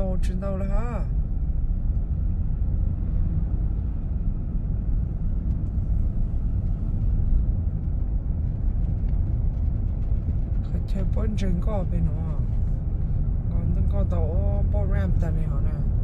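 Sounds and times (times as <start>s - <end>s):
car cabin road and engine rumble: 0.0s - 16.0s.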